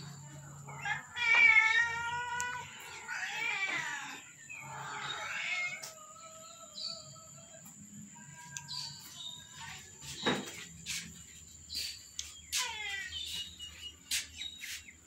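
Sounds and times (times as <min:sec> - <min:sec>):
cats meowing: 0:00.6 - 0:07.2, 0:12.2 - 0:13.4.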